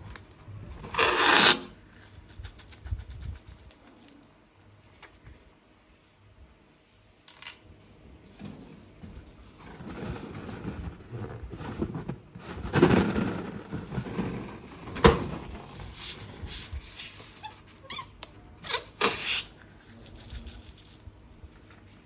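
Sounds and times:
rubber balloons squeaking: 17.3s - 19.5s.

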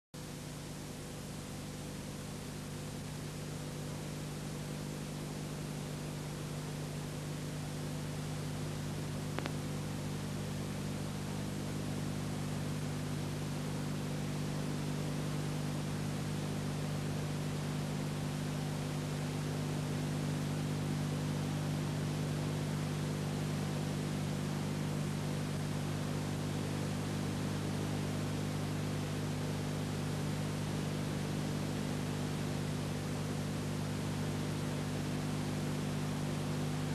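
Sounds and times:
low electrical hum: 0.2s - 36.9s
faint click: 9.3s - 9.6s.

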